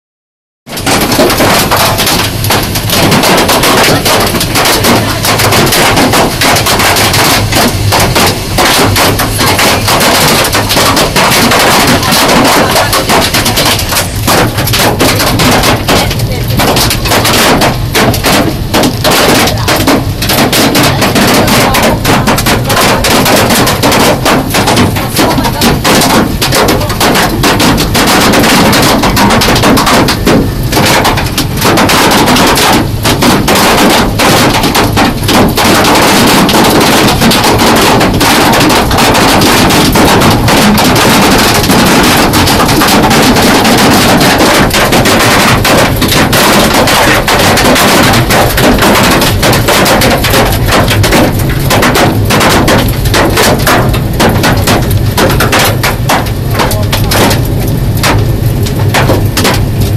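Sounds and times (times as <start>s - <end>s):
hail pelting car roof: 0.6s - 59.9s.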